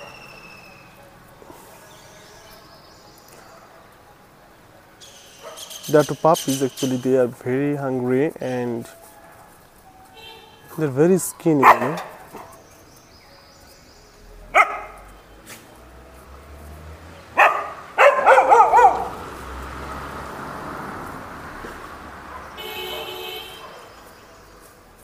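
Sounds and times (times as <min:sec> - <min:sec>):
dogs barking: 0:03.3 - 0:04.2, 0:05.0 - 0:06.2, 0:08.8 - 0:10.4, 0:11.4 - 0:12.8, 0:14.5 - 0:15.8, 0:17.2 - 0:19.8, 0:21.7 - 0:24.5
vehicle horn: 0:10.0 - 0:10.8, 0:22.5 - 0:24.1.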